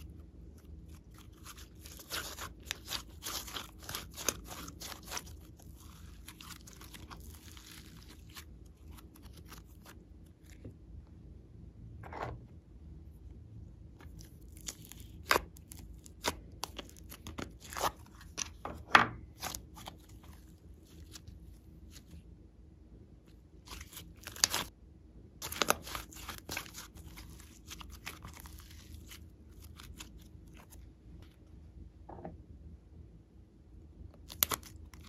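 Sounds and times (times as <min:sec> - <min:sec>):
slime squeezed popping and crackling: 0:00.9 - 0:09.9, 0:14.0 - 0:18.6, 0:25.4 - 0:30.2, 0:34.2 - 0:35.0.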